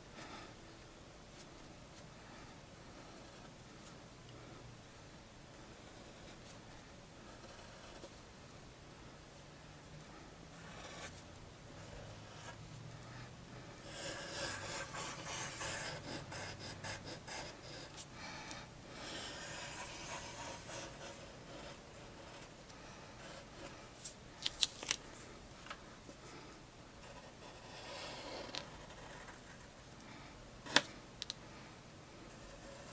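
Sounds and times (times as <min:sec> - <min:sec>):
pencil scratching on paper: 0:10.6 - 0:11.2, 0:13.8 - 0:18.0, 0:19.0 - 0:22.5, 0:27.0 - 0:29.7, 0:32.3 - 0:32.9.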